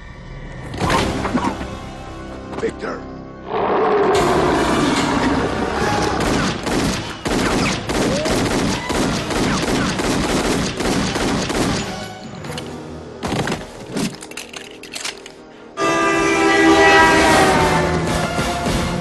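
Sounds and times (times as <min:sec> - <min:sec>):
rapid handgun gunfire: 0:06.2 - 0:12.0.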